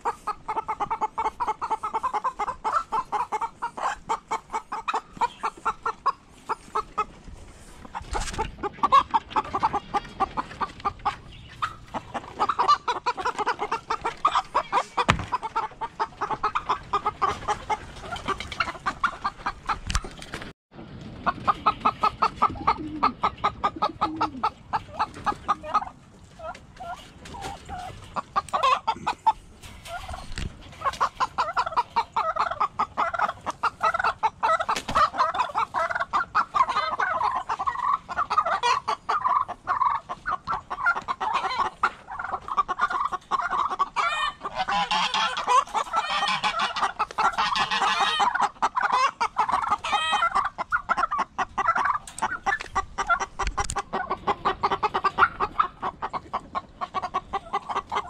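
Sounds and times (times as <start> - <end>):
turkey gobbling: 0.0 - 20.2, 21.2 - 58.0
chickens clucking: 0.0 - 58.0.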